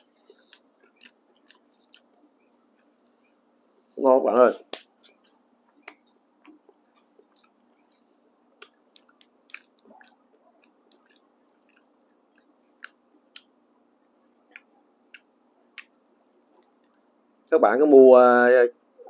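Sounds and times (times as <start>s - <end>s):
person chewing: 0.0s - 3.2s, 5.0s - 17.0s.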